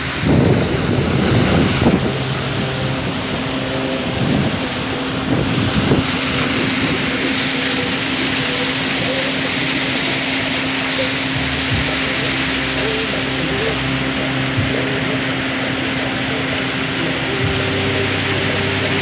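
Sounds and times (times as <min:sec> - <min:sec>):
wind buffeting microphone: 0:00.0 - 0:13.0
motorboat engine humming: 0:00.0 - 0:19.0.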